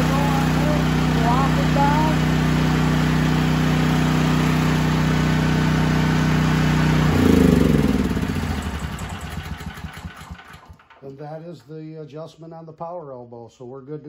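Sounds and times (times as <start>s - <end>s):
generator engine running and winding down: 0.0s - 11.2s.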